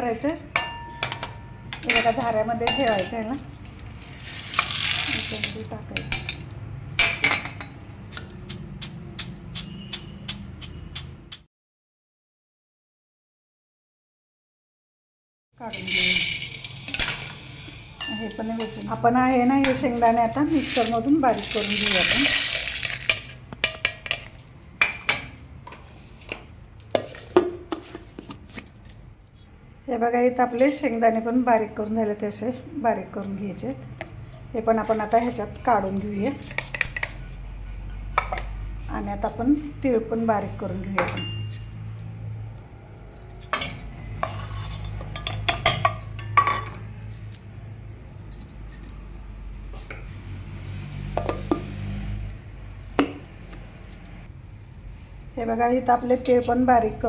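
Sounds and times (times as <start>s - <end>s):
metal bowl and jar clinking: 0.5s - 10.0s, 15.7s - 25.8s, 34.9s - 42.1s, 43.1s - 47.4s, 55.8s - 57.0s.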